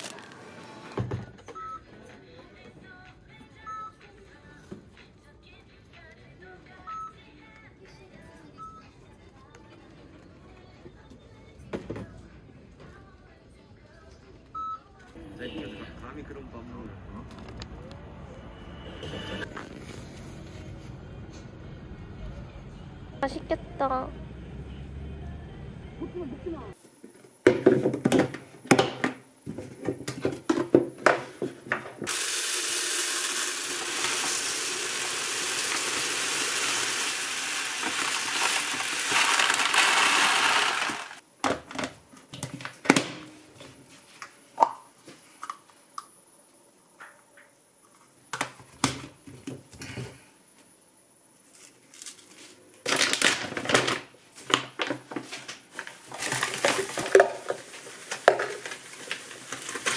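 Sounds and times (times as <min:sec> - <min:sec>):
rice pouring into plastic bin: 0:32.1 - 0:41.2
plastic containers knocking: 0:56.2 - 0:57.6.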